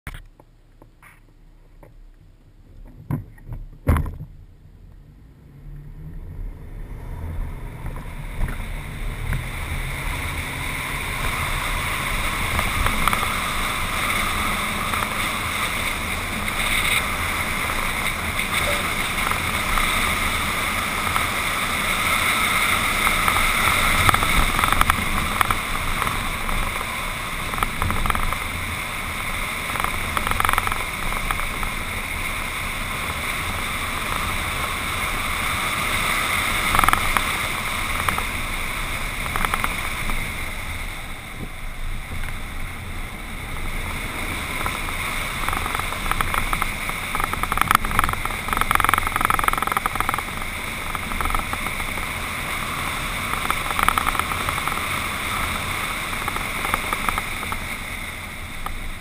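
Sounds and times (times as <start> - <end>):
wind and tyre noise: 0.1 - 59.0
short knocks from rough track: 2.8 - 4.4.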